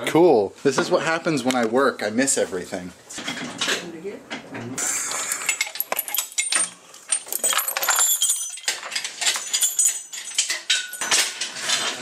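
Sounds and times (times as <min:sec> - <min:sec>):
metal chain jangling: 0:05.4 - 0:11.4.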